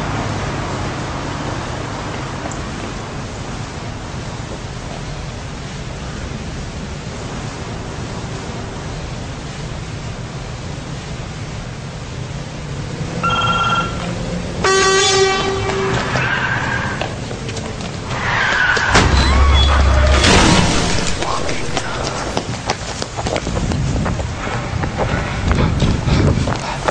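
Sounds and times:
car road and engine noise: 0.0s - 26.9s
car horn honks: 13.2s - 17.0s.

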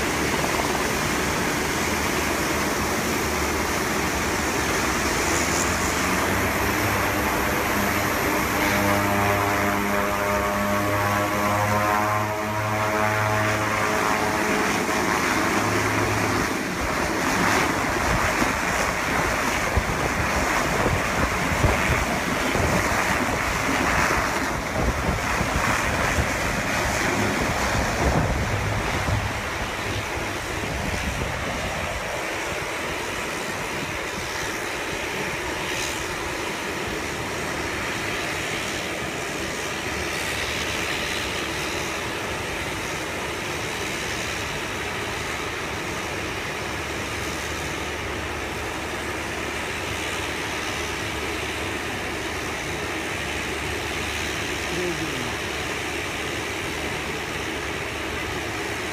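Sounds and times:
buzzing propeller tone: 0.0s - 58.0s
turboprop engines roaring: 0.0s - 58.9s
wind noise: 14.6s - 34.5s.

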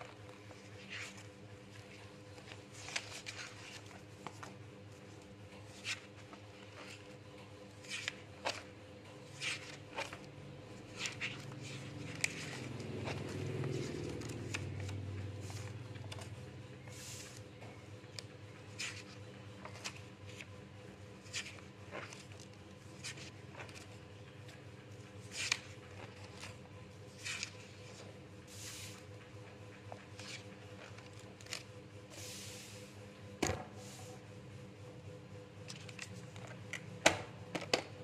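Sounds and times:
paper pages rustling: 0.0s - 7.2s, 7.8s - 8.7s, 9.3s - 17.5s, 18.2s - 20.5s, 21.2s - 29.0s, 29.9s - 31.8s, 35.7s - 36.6s.

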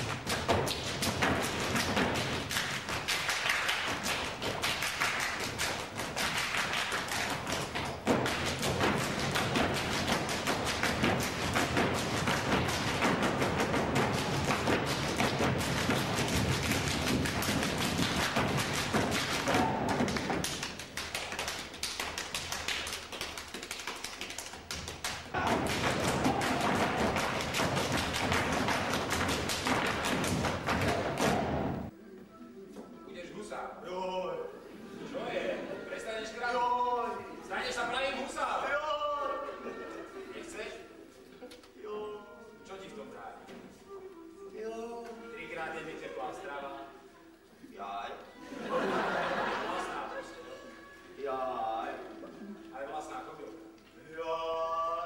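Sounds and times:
feet stamping on stage floor: 0.0s - 31.9s.

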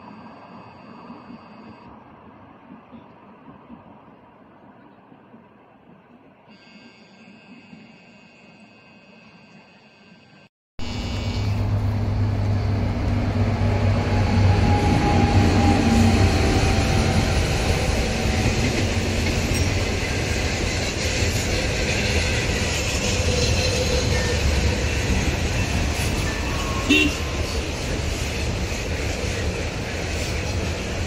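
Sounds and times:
low locomotive hum: 0.0s - 31.0s
train passing on rails: 11.4s - 31.0s.

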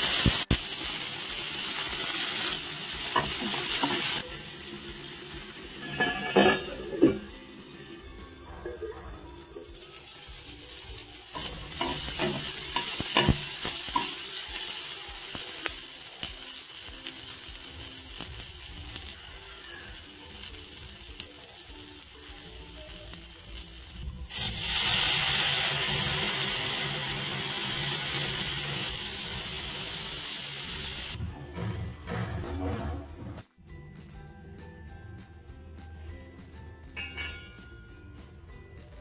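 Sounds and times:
sauce sizzling in oil: 0.0s - 31.2s
faint background music: 0.0s - 39.0s
spoon scraping a pan: 5.8s - 7.3s.

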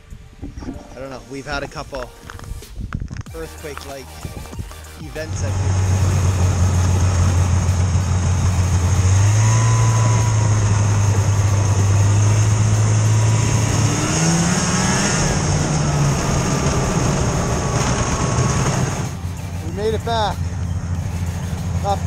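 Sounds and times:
snowmobile engine at speed: 5.2s - 22.0s.

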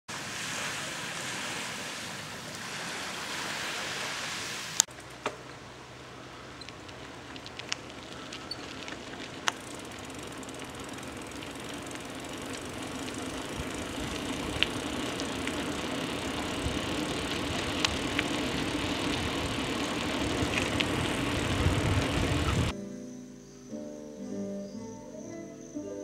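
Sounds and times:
low engine hum: 4.9s - 22.7s
light ticks: 6.6s - 15.7s, 17.2s - 18.5s
outdoor rushing noise: 9.5s - 22.7s.

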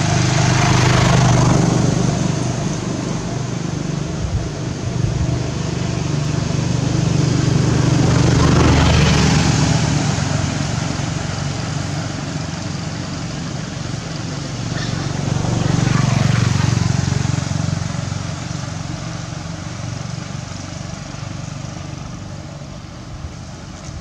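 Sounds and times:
vehicle engine humming: 0.0s - 24.0s.

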